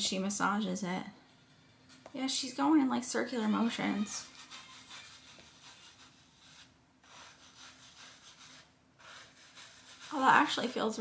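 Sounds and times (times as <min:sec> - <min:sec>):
scalp massager rustling through hair: 0:03.6 - 0:11.0.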